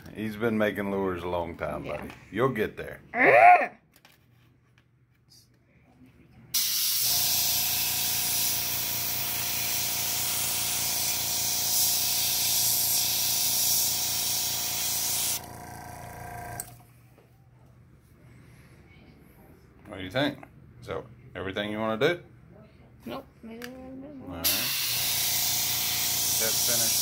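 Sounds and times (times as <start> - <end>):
airbrush spraying hiss: 6.6 - 15.4, 24.5 - 27.0
small air compressor humming: 6.6 - 16.8, 24.4 - 27.0.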